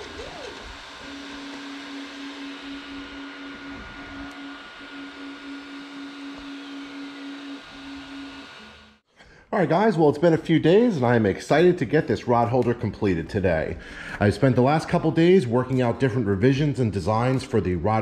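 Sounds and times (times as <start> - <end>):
stepper motors whining: 0.0 - 9.0.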